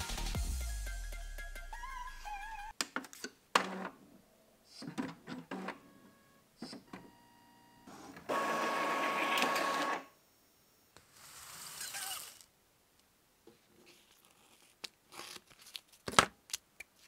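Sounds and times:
inkjet printer running: 7.9 - 10.1.

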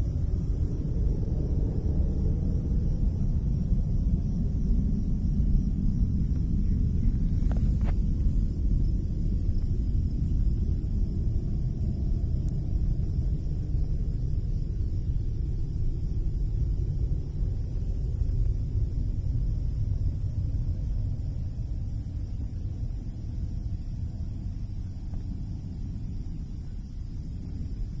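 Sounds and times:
low rumbling outdoor noise: 0.0 - 28.0.

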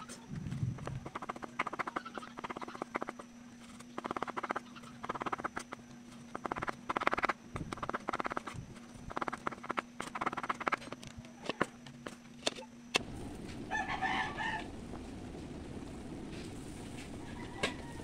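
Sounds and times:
steady hiss: 13.0 - 18.0
rooster crowing: 13.6 - 14.8, 17.0 - 18.0.

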